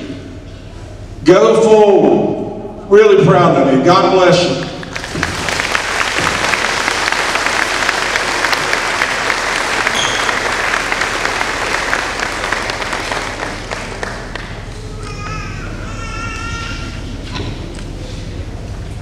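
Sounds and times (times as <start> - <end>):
audience applauding: 4.6 - 15.0.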